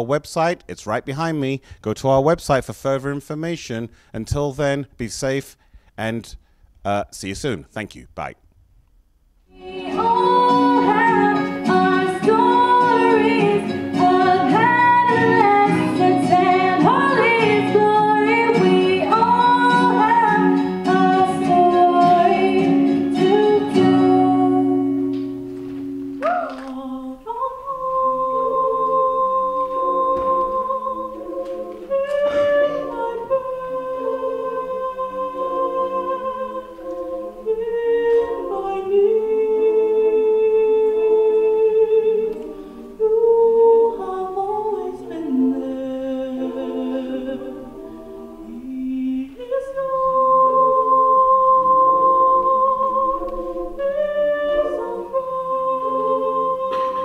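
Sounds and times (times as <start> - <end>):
girls' choir singing: 9.5 - 25.4, 26.2 - 57.0
girl singing into a microphone: 9.6 - 25.2, 26.2 - 45.7.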